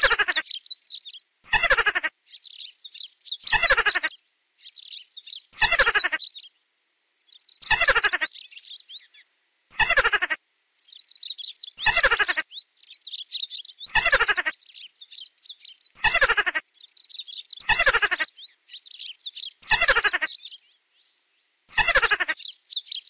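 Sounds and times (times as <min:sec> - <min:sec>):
rodent squealing: 0:00.0 - 0:00.4, 0:03.5 - 0:04.1, 0:05.5 - 0:06.2, 0:07.6 - 0:08.3, 0:09.8 - 0:10.4, 0:11.8 - 0:12.4, 0:13.9 - 0:14.5, 0:16.0 - 0:16.6, 0:17.6 - 0:18.3, 0:19.6 - 0:20.3, 0:21.7 - 0:22.4
high birdsong chirping: 0:00.0 - 0:23.0.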